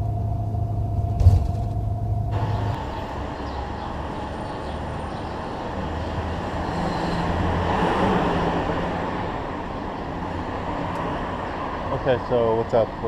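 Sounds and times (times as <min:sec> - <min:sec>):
vehicle engine humming: 0:00.0 - 0:07.4
city street traffic: 0:00.0 - 0:13.0.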